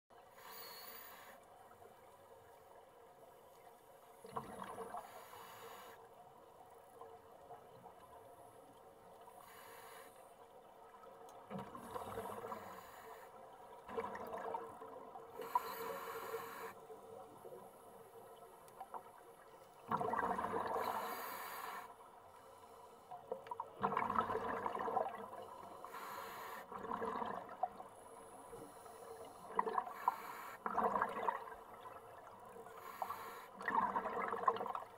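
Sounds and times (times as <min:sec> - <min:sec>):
regulator inhale hiss: 0:00.3 - 0:01.5, 0:05.0 - 0:06.1, 0:09.4 - 0:10.4, 0:12.2 - 0:13.5, 0:15.4 - 0:16.9, 0:20.8 - 0:23.2, 0:25.6 - 0:26.7, 0:28.2 - 0:30.6, 0:32.7 - 0:33.6.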